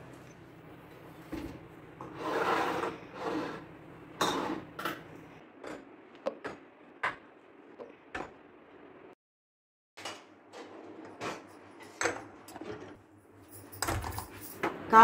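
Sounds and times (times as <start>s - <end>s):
jars rubbing and sliding: 2.0s - 3.7s.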